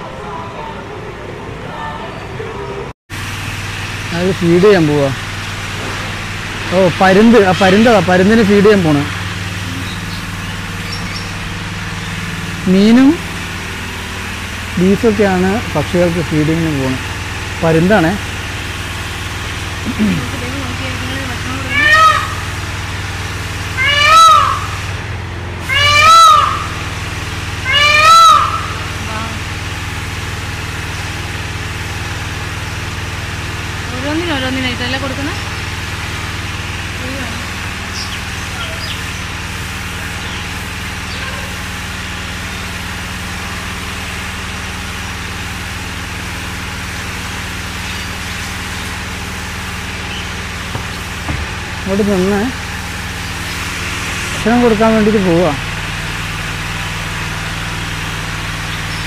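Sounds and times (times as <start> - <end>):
steady low hum: 0.0 - 59.0
kite mewing cry: 21.0 - 25.0, 25.6 - 29.5.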